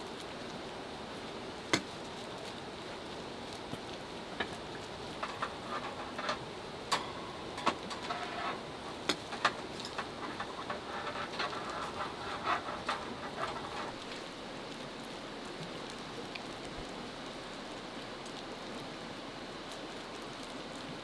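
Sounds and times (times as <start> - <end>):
rain pattering: 0.0 - 21.0
plastic glove rustling: 1.9 - 14.4.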